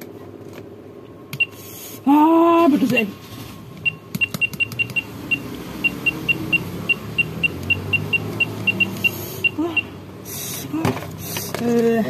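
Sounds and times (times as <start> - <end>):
keypad beeps: 1.4 - 1.6, 3.8 - 9.9.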